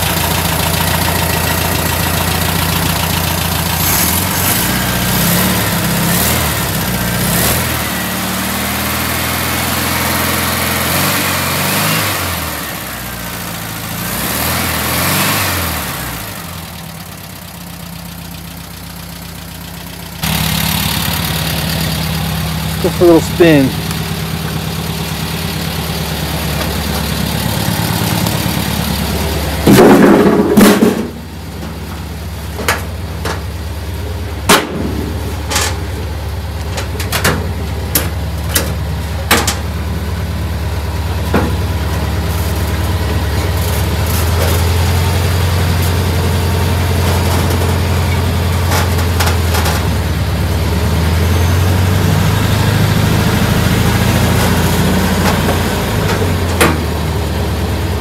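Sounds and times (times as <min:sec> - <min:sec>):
vehicle engine running: 0:00.0 - 0:58.0
sharp clicks and knocks: 0:36.6 - 0:39.7, 0:54.2 - 0:57.0.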